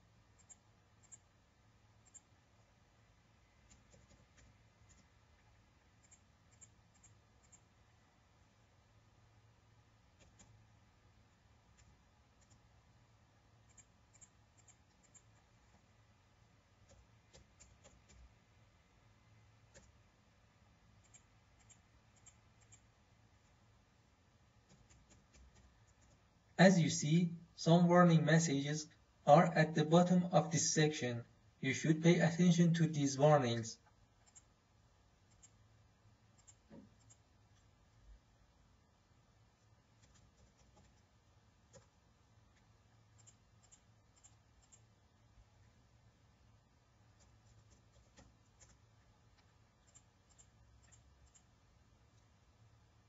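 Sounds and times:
mouse clicks: 0.4s - 1.3s, 6.0s - 7.7s, 10.1s - 10.6s, 13.6s - 15.8s, 19.7s - 20.0s, 21.0s - 22.9s, 34.2s - 34.5s, 35.3s - 35.6s, 36.4s - 37.7s, 42.5s - 44.9s, 47.2s - 52.3s
computer keyboard clicks: 3.7s - 5.1s, 10.2s - 10.6s, 16.8s - 18.3s, 19.7s - 20.0s, 24.7s - 26.2s, 40.0s - 41.0s, 47.2s - 48.8s.

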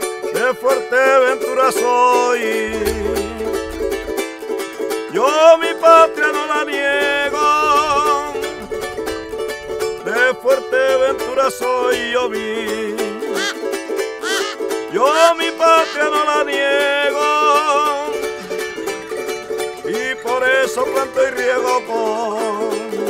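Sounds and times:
plucked string instruments: 0.0s - 23.0s
held drone: 2.7s - 4.6s.

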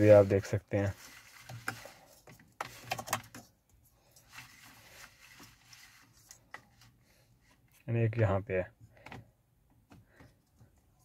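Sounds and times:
plastic clicks and rubbing: 1.1s - 6.9s.

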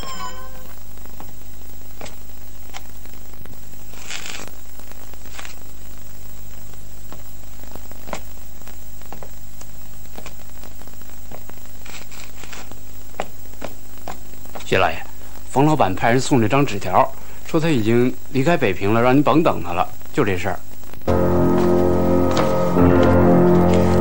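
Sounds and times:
low electrical hum and hiss: 0.0s - 24.0s
faint clicks and crackles: 0.9s - 14.6s
rustle: 1.9s - 14.4s.

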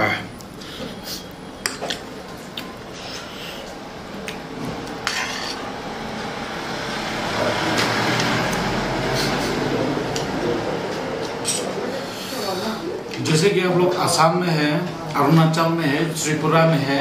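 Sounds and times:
cutlery scraping and clinking on plate: 5.0s - 5.7s.

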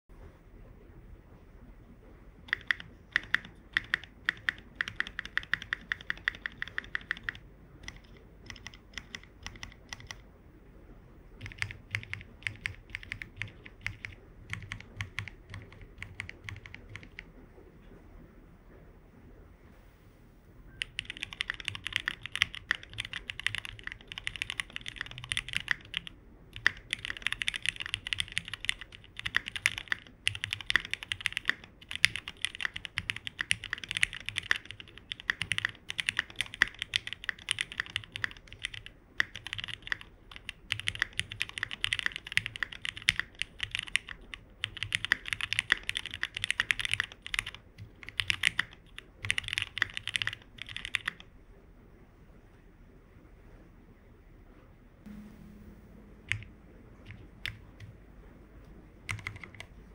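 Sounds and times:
mechanical keyboard typing: 2.4s - 10.2s, 11.4s - 17.3s, 20.8s - 51.3s, 56.3s - 57.9s, 59.1s - 59.7s.

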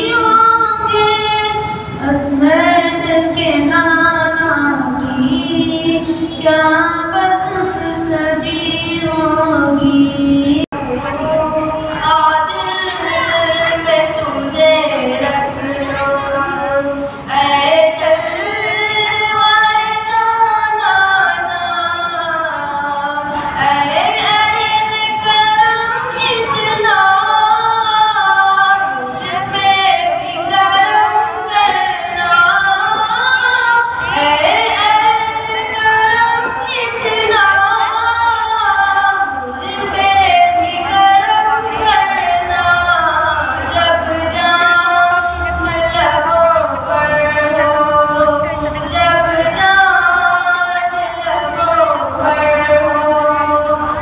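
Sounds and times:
boy singing into microphone: 0.0s - 54.0s.

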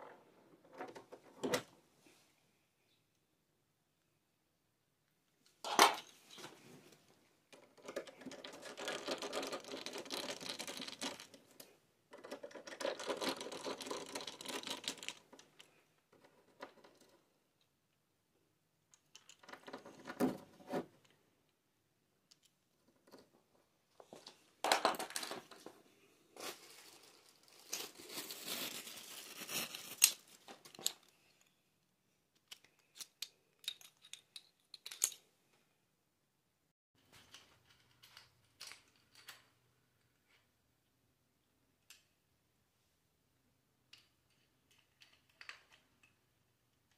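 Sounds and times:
rustling and scraping: 22.8s - 31.6s.

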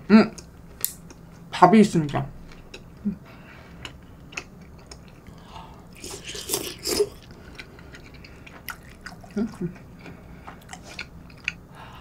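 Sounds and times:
person chewing: 2.5s - 11.9s.

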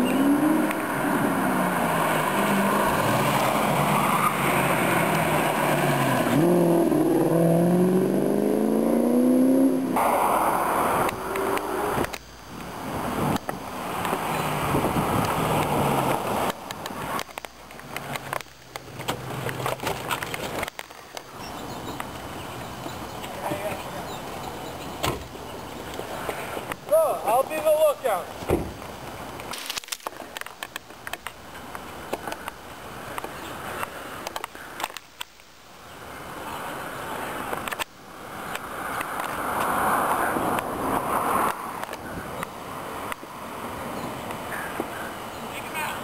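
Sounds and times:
car driving past: 0.0s - 12.1s.

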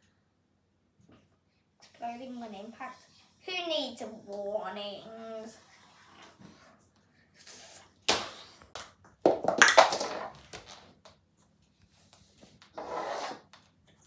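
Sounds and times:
plastic ball hitting floor: 8.1s - 11.2s.

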